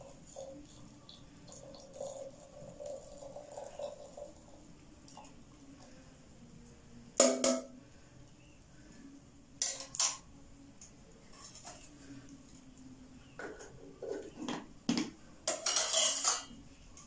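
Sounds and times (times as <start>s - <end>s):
metal pans clanking: 9.6s - 10.2s, 13.4s - 16.6s.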